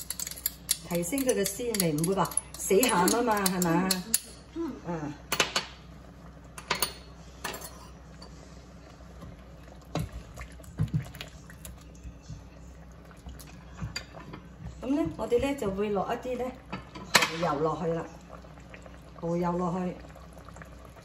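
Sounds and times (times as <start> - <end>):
steady low hum: 0.0 - 21.0
liquid simmering: 8.4 - 16.9, 17.6 - 21.0.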